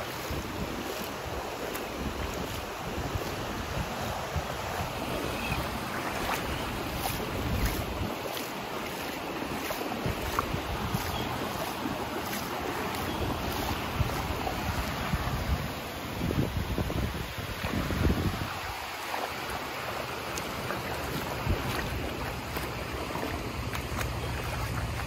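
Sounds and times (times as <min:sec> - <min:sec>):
wind gusting on microphone: 0:00.0 - 0:08.4, 0:09.9 - 0:18.9
small surf washing: 0:00.0 - 0:25.0.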